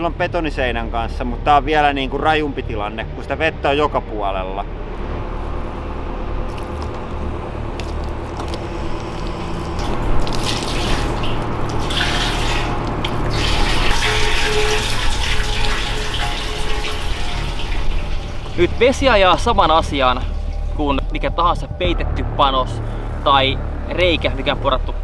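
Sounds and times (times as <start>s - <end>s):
excavator engine humming: 4.6s - 21.1s
water pouring and splashing: 6.4s - 21.3s.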